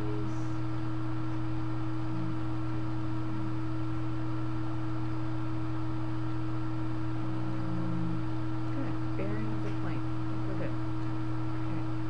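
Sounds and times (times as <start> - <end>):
electrical hum: 0.0 - 12.0.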